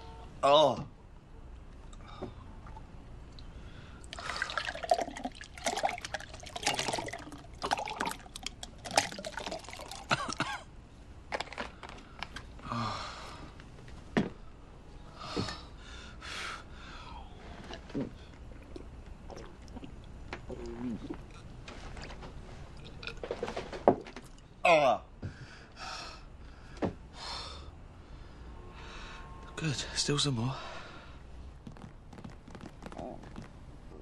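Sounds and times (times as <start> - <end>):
liquid pouring into a glass: 4.1 - 10.2.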